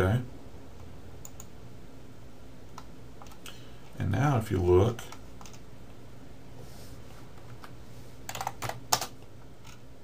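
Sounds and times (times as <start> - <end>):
steady low hum: 0.0 - 10.0
keyboard keystrokes: 8.3 - 9.8.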